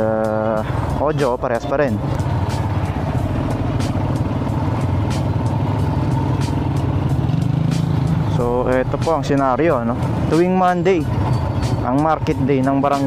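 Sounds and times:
motorcycle engine droning: 0.0s - 13.0s
road noise: 0.0s - 13.0s.

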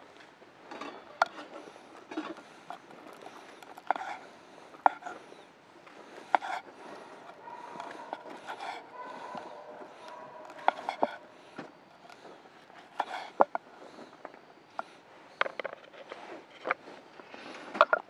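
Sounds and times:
low background noise: 0.0s - 18.0s
sharp clicks and knocks: 6.3s - 13.6s.

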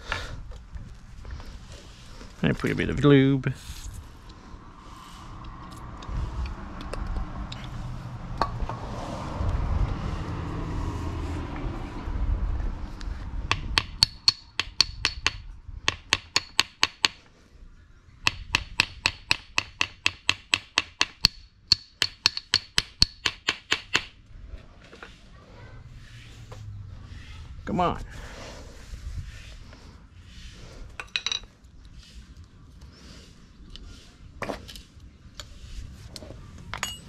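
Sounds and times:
parts rumbling and scraping: 0.0s - 14.4s, 24.1s - 37.0s.

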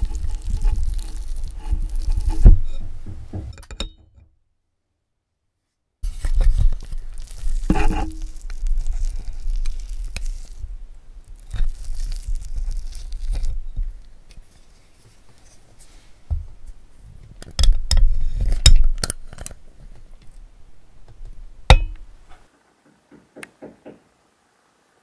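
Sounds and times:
low handling rumble: 2.3s - 3.6s.

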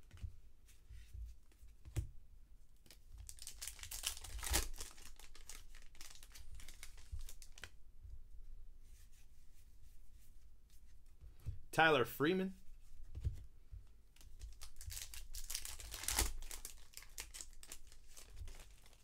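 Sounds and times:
foil wrapper crinkling and tearing: 3.2s - 7.7s, 14.4s - 19.0s.

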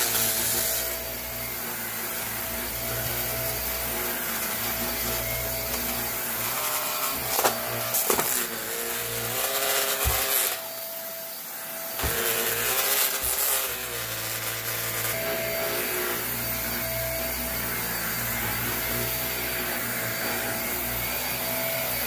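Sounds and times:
vacuum cleaner running on carpet: 0.0s - 22.0s.

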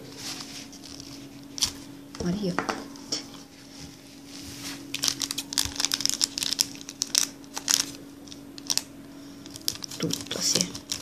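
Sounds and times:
foil sachet crinkling: 0.0s - 1.9s, 4.6s - 11.0s.

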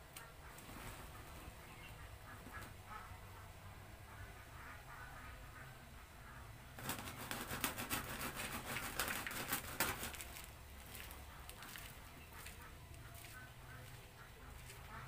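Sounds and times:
gritty feed stirred in plastic basin: 8.1s - 12.6s.

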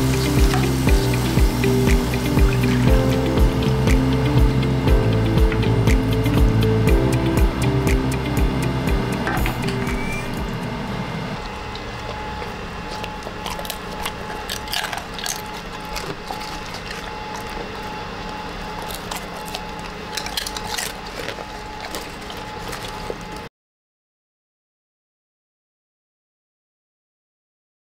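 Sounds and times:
background music: 0.0s - 11.4s
dog crunching chips: 11.4s - 23.5s.

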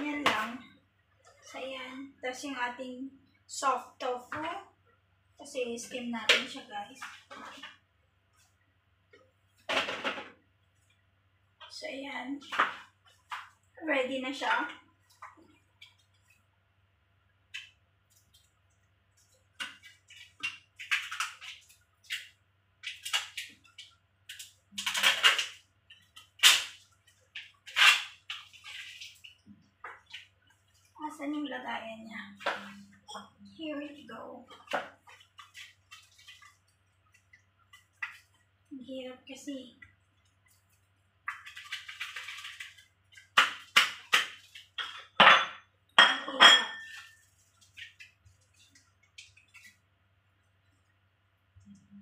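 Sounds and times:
kitchenware clattering: 44.8s - 47.2s.

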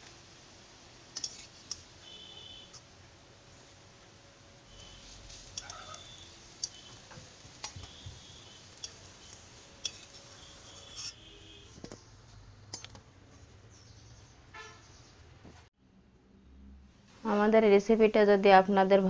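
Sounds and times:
metal spatula scraping iron pan: 1.2s - 1.8s, 4.7s - 7.0s, 7.6s - 11.4s
spatula clinking on steel plate: 5.5s - 6.8s, 8.8s - 9.1s, 9.8s - 11.2s.

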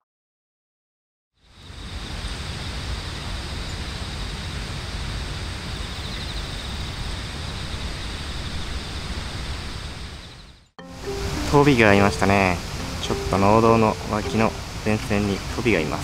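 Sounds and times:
insects trilling: 1.4s - 16.0s
pulsing insect call: 5.7s - 16.0s
low rushing outdoor noise: 10.9s - 16.0s.

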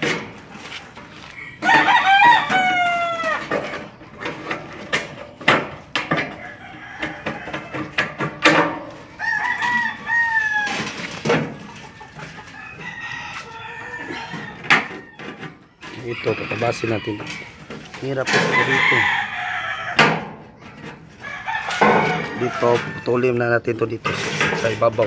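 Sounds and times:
rooster crowing: 1.3s - 3.7s, 6.2s - 8.2s, 9.1s - 20.2s, 21.2s - 23.3s.

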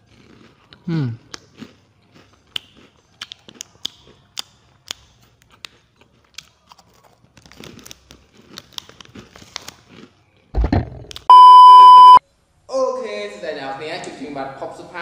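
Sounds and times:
crunchy snack chewing: 0.0s - 10.5s.

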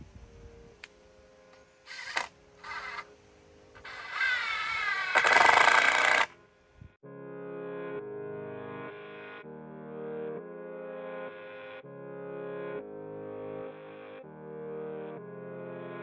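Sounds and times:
cordless drill driving screws: 1.9s - 3.2s, 3.8s - 6.3s
background music: 6.3s - 16.0s.

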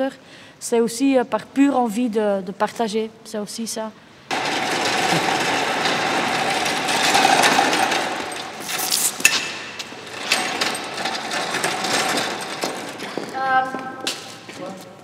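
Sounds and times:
mechanical rattling and buzzing: 4.3s - 13.2s.

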